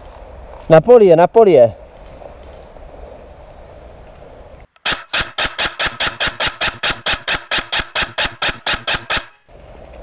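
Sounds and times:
airsoft rifle firing rapidly: 4.8 - 9.4.

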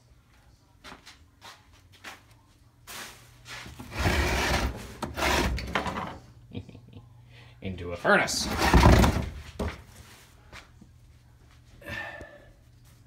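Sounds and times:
loud rubbing scraping noise: 3.6 - 6.0, 8.4 - 9.3.

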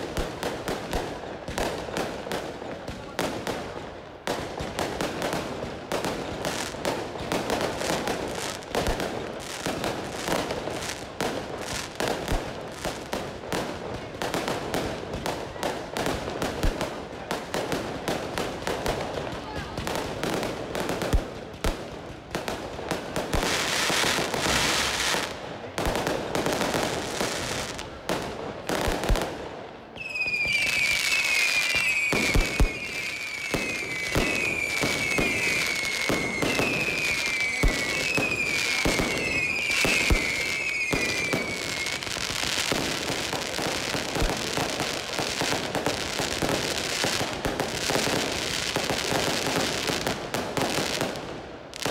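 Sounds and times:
fireworks bangs and crackling: 0.0 - 51.9
shrill falling firework whistles: 30.0 - 42.2.

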